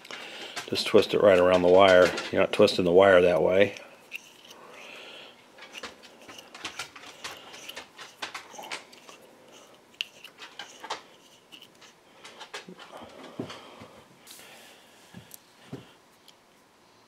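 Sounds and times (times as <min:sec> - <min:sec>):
metal sensor body clicking and scraping: 0:00.6 - 0:04.9, 0:05.6 - 0:12.7.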